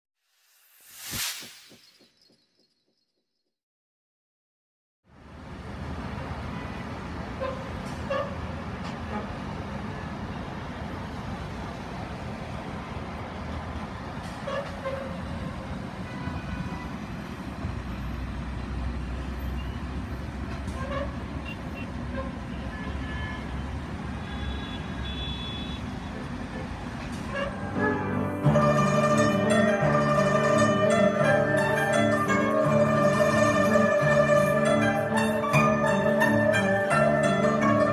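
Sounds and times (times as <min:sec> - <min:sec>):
traffic rumble and tyre noise: 0:05.0 - 0:37.9
car horn toots: 0:24.3 - 0:25.9.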